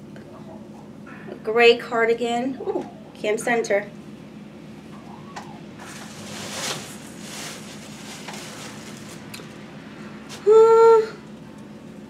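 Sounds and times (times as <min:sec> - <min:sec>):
cloth rustling: 0:05.8 - 0:09.3
person humming a high note: 0:10.4 - 0:11.2.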